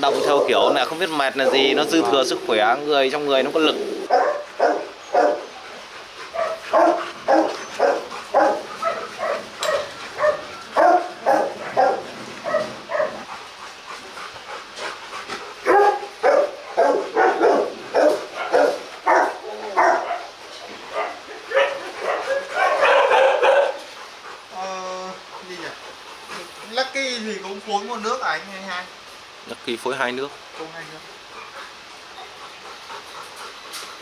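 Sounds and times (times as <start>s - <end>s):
dog barking: 1.4s - 2.2s, 4.1s - 5.5s, 6.3s - 13.2s, 15.6s - 23.9s.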